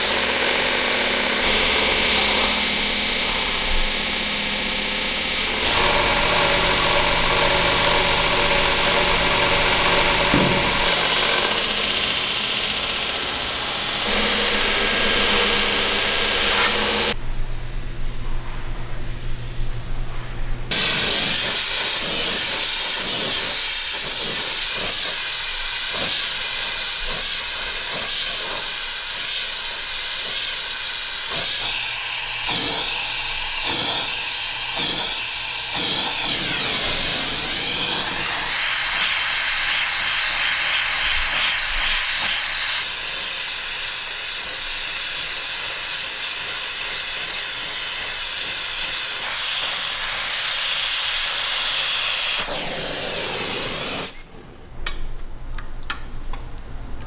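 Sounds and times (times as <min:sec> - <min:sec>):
burning oil flaring: 0:00.0 - 0:17.2
gas torch flame hissing: 0:00.0 - 0:17.2, 0:20.7 - 0:54.3.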